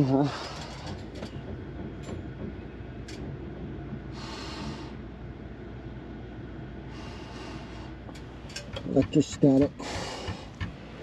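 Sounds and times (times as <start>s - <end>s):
steady low rumble: 0.0s - 11.0s
person breathing close up: 6.9s - 8.0s, 9.8s - 10.6s.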